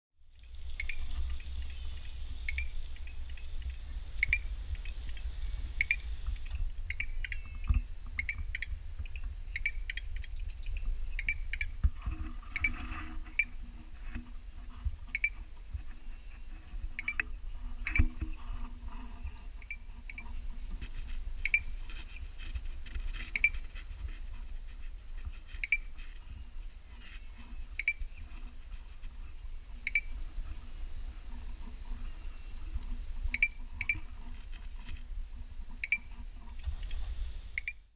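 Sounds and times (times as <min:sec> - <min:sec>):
treefrogs calling: 0:00.3 - 0:11.8, 0:15.1 - 0:15.5, 0:16.2 - 0:18.4, 0:19.5 - 0:29.2, 0:29.8 - 0:30.3, 0:31.4 - 0:36.5, 0:37.6 - 0:37.9.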